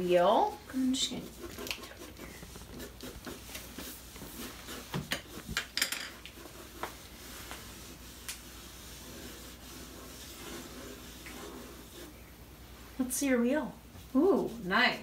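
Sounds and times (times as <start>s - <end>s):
pencil scratching on paper: 0.0s - 12.2s
sketchbook knocks and rustles: 2.4s - 6.1s.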